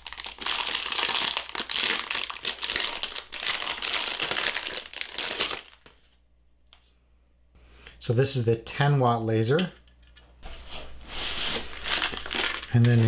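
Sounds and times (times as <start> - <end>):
packaging crinkling: 0.0 - 6.1, 11.7 - 12.8.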